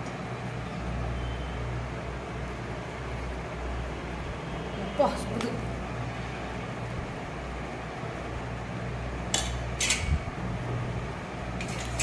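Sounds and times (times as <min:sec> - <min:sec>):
spatula clinking on steel: 0:09.3 - 0:10.1.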